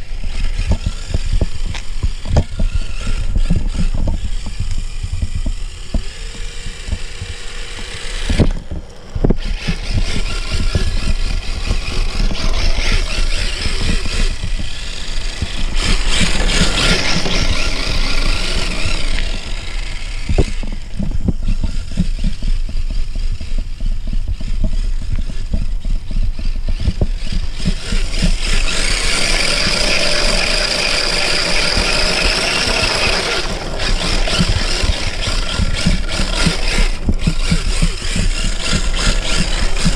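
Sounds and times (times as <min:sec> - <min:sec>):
electric rc car motor whining: 0:00.0 - 0:39.9
low rumble: 0:00.0 - 0:39.9.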